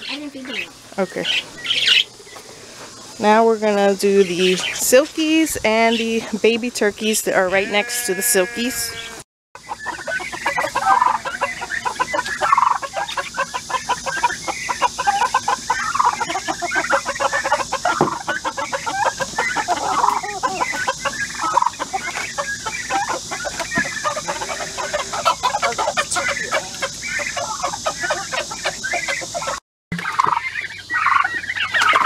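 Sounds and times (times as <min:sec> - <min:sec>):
chickens clucking: 0:00.0 - 0:32.0.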